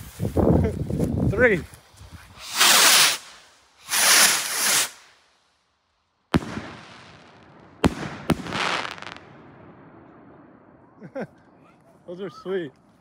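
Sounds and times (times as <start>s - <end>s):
hiss: 2.3s - 5.3s
rocket whooshing up: 2.3s - 5.3s
firework bangs: 2.4s - 5.1s, 6.3s - 10.6s.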